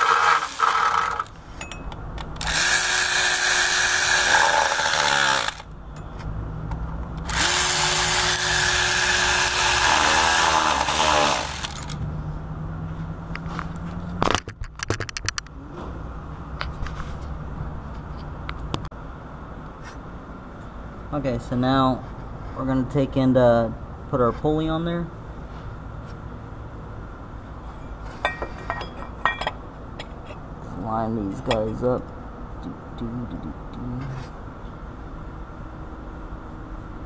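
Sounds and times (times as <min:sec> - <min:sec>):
power ratchet whining: 0:00.0 - 0:01.4, 0:02.3 - 0:05.8, 0:07.2 - 0:12.0.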